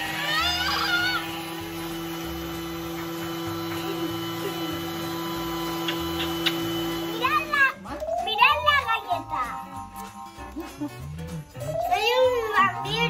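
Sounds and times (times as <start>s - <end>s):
food processor motor hum: 0.0s - 7.8s.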